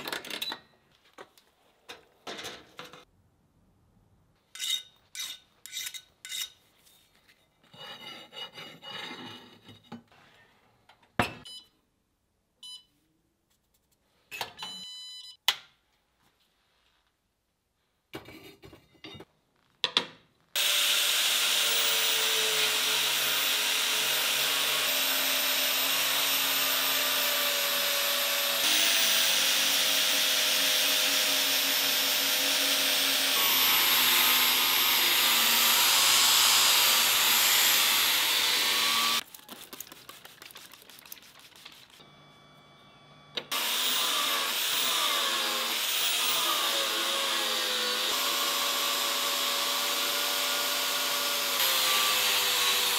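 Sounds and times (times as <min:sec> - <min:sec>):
angle grinder grinding steel: 0:20.6 - 0:39.2, 0:43.5 - 0:52.9.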